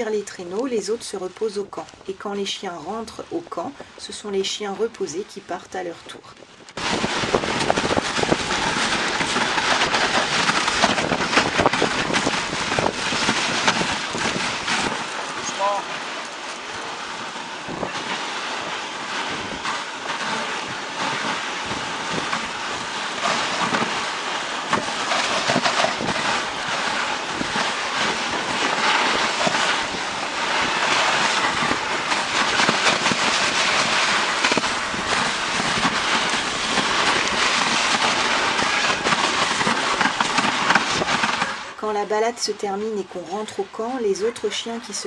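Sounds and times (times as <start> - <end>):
sled knocks and jolts: 0.0 - 45.0
wind on microphone: 6.1 - 41.8
sled runners hissing on snow: 6.8 - 41.8.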